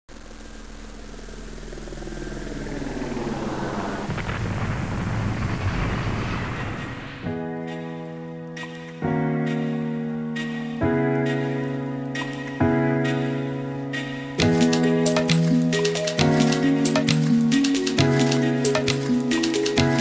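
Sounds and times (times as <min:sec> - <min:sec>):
deep rumbling boom: 0:01.8 - 0:07.4
soft sustained music chords: 0:06.6 - 0:20.0.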